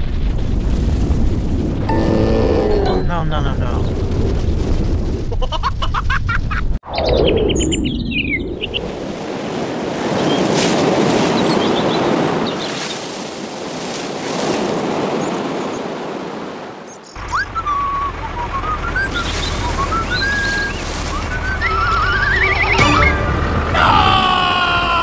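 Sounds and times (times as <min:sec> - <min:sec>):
sweeping tone: 0:01.9 - 0:03.4.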